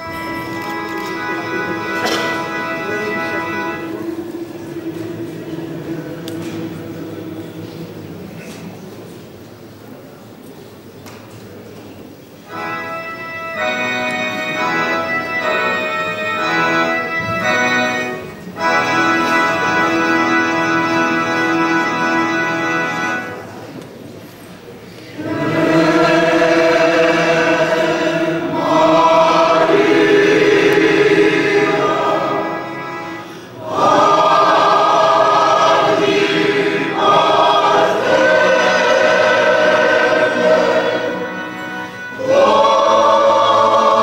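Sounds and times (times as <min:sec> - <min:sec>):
mixed choir singing: 0:01.1 - 0:09.3, 0:25.1 - 0:44.0.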